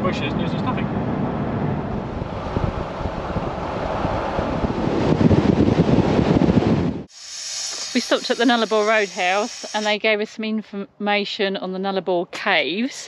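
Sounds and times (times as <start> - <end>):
road and engine noise: 0.0 - 11.0
wind buffeting microphone: 0.2 - 7.1.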